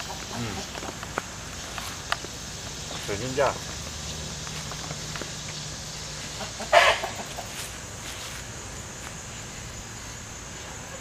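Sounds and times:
chicken squawking: 6.4s - 7.5s.

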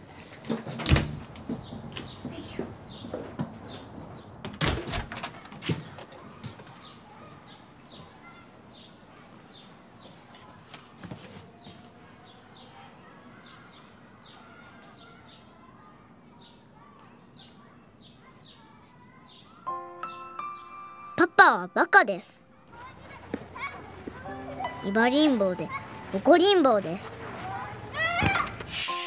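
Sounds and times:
bird chirping: 13.5s - 27.0s.

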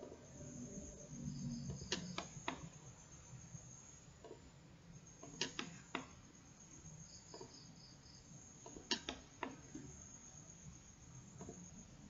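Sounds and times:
faint high whine: 0.0s - 12.0s
computer mouse clicking: 1.7s - 2.7s, 5.2s - 6.1s.

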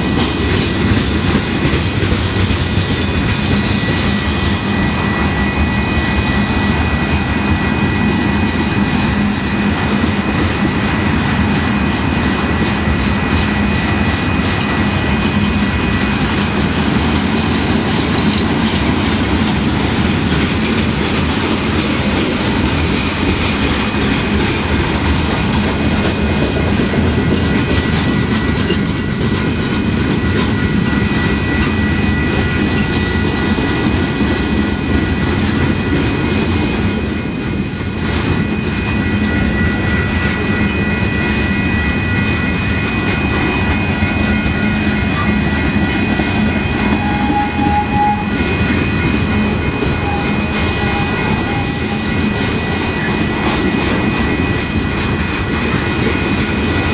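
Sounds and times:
train wheels rumbling on rails: 0.0s - 56.9s
high-pitched squeal: 38.5s - 54.8s.

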